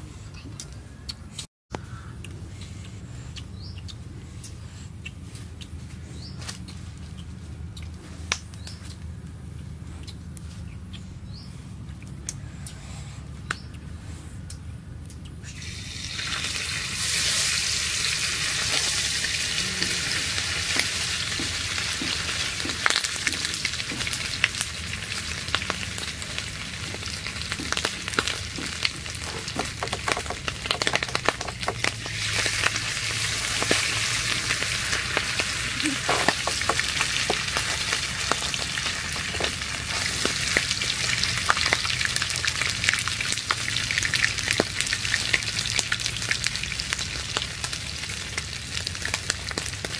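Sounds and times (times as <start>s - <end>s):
fish sizzling in hot oil: 15.6s - 49.9s.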